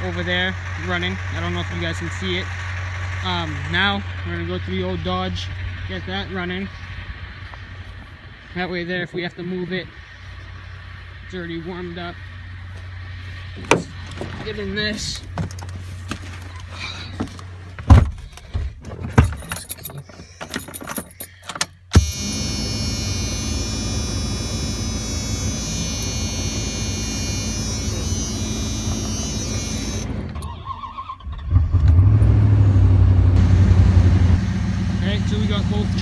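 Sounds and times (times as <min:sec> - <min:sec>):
truck engine running loudly: 0:00.0 - 0:08.6, 0:22.0 - 0:30.5, 0:31.8 - 0:36.0
keys handled: 0:19.0 - 0:21.6
starter motor whir: 0:21.9 - 0:32.4.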